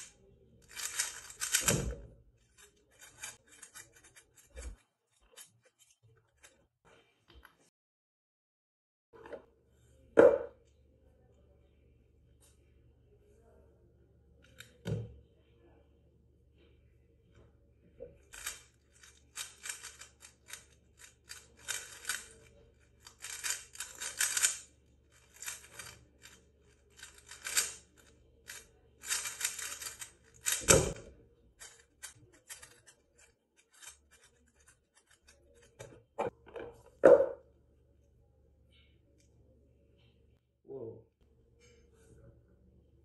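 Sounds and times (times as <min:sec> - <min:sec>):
plastic cube clicking: 0:00.7 - 0:02.0, 0:18.3 - 0:31.0.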